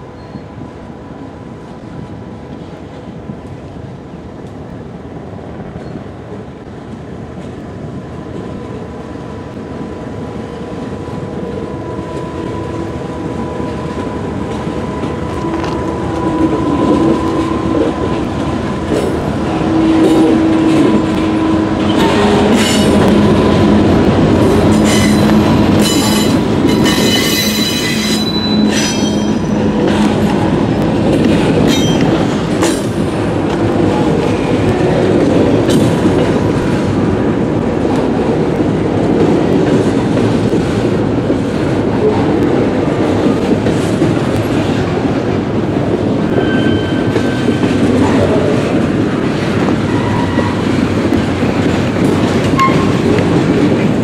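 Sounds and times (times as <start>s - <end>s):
diesel locomotive passing: 0.0s - 54.0s
high-pitched wheel squeal: 24.8s - 29.6s, 46.3s - 47.7s.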